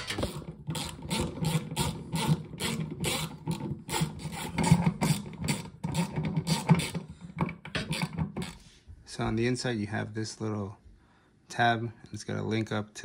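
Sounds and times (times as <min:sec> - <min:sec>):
screwdriver bit scraping metal: 0:00.0 - 0:07.1, 0:07.7 - 0:08.6.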